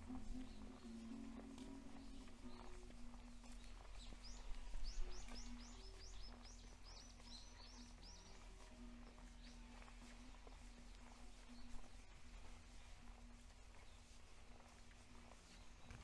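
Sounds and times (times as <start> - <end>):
small bird singing: 0.1 - 12.0.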